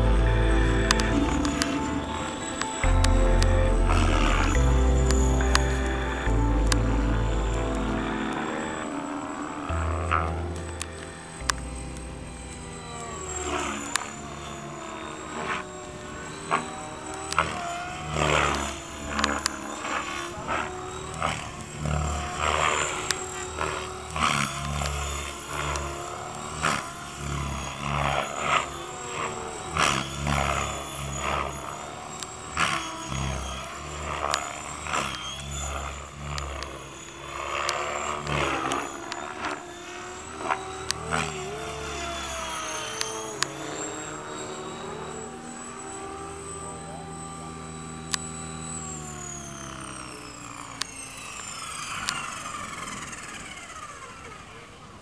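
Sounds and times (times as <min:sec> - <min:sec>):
pulsing low bass notes: 0:00.0 - 0:08.6
didgeridoo drone: 0:00.0 - 0:54.9.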